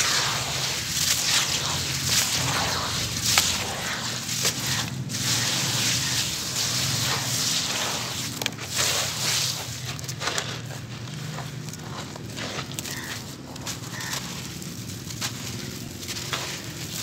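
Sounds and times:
water splashing onto cement chunks: 0.0s - 10.8s
sharp crackles: 0.0s - 17.0s.

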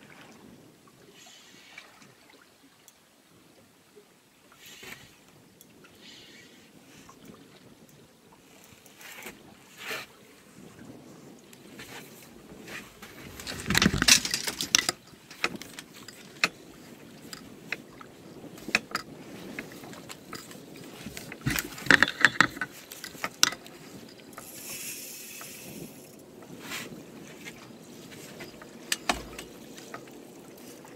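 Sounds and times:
fishing tackle clicking and knocking: 12.9s - 26.2s, 28.2s - 30.1s.

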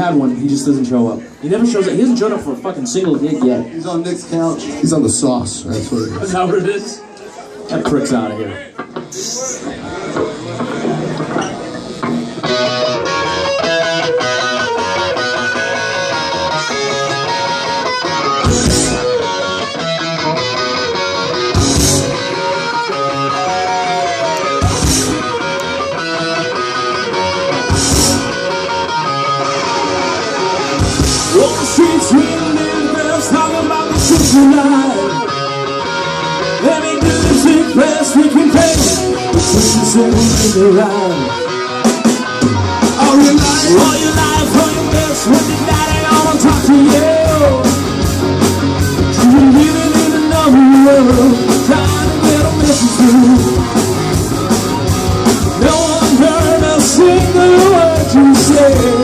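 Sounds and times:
live rock band playing: 0.0s - 59.0s
man singing lead vocal: 31.3s - 35.3s, 36.5s - 41.5s, 42.8s - 47.9s, 49.0s - 53.8s, 55.6s - 59.0s.

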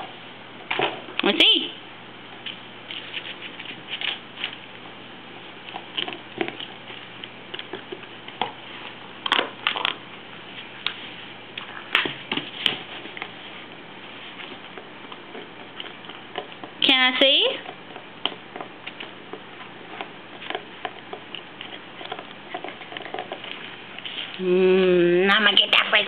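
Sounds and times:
dog playing with plastic frisbee: 5.7s - 24.4s.

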